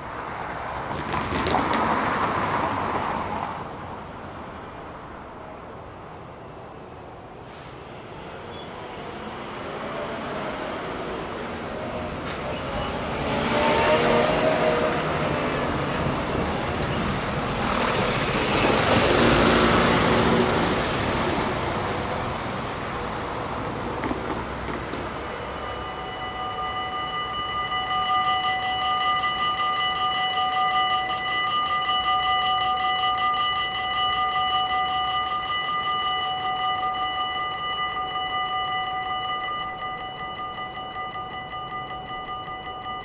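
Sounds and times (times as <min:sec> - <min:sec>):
vehicles driving over crossing: 0:00.0 - 0:43.0
crossing warning bells ringing: 0:08.2 - 0:43.0.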